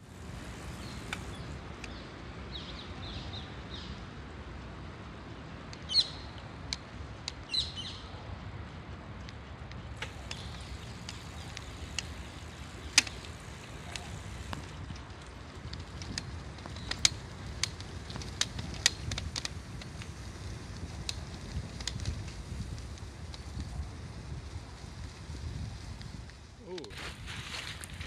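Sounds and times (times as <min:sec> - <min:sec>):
bike clicks and knocks over bumps: 0:00.0 - 0:02.0, 0:09.1 - 0:28.0
bicycle tyres rumbling on pavement: 0:00.0 - 0:28.0.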